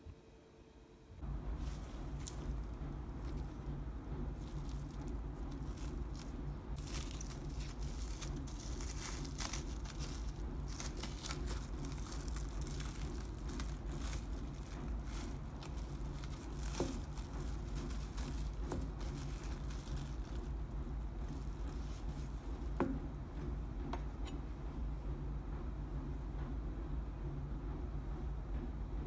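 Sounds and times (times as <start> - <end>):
steady low hum: 0.0 - 29.0
cling film crinkling: 1.2 - 22.9.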